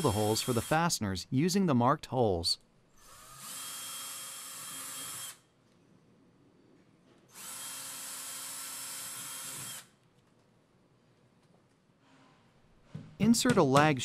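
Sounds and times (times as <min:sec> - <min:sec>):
cordless drill boring: 0:00.0 - 0:00.8, 0:03.0 - 0:05.4, 0:07.3 - 0:09.9.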